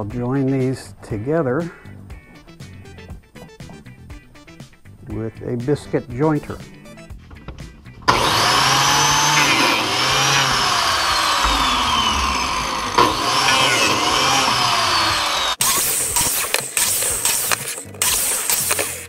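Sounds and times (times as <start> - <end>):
biscuit jointer whining: 8.0 - 15.8.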